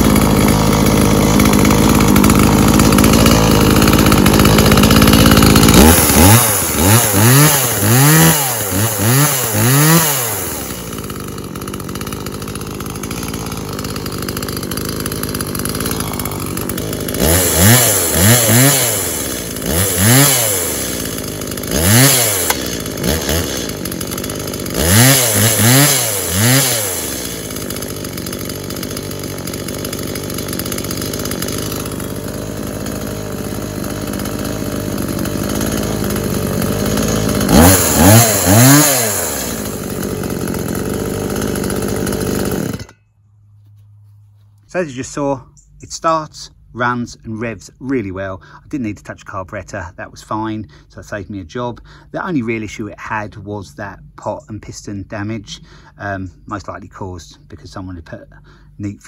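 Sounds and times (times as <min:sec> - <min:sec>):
chainsaw idling and revving: 0:00.0 - 0:43.0, 0:44.8 - 0:59.0.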